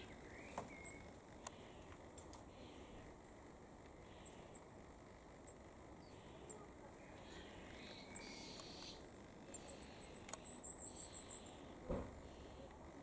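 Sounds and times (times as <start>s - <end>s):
faint background birdsong: 0.0s - 13.0s
high thin goldcrest calls: 5.5s - 11.8s.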